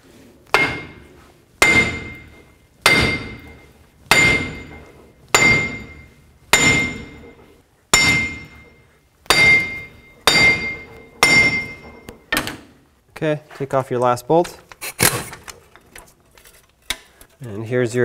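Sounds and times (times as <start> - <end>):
hammer striking metal hub: 0.5 - 12.5.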